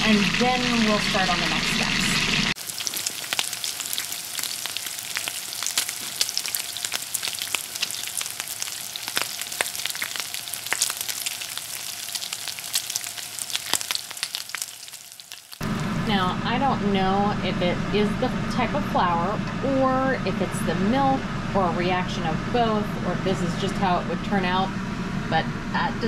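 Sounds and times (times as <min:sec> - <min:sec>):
liquid pouring into a pan: 0:00.0 - 0:15.4
hot oil sizzling and crackling: 0:00.0 - 0:16.1.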